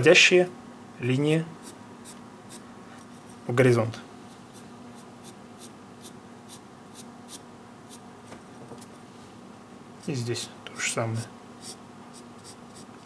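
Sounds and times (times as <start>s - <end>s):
pencil scratching on paper: 11.6s - 12.9s.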